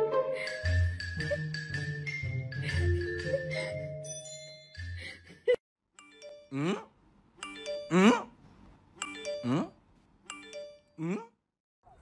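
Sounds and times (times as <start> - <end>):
music: 0.0 - 5.1
chime-like tones: 0.4 - 5.2, 9.0 - 11.0.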